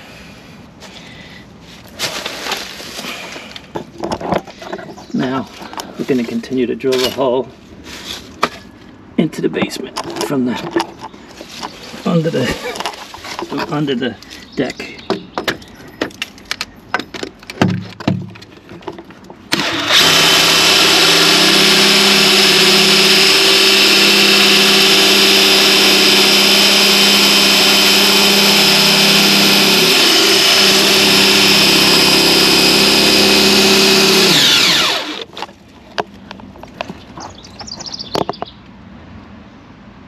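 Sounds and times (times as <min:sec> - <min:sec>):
knocks: 0:16.9 - 0:19.1
power drill with hole saw: 0:19.5 - 0:35.3.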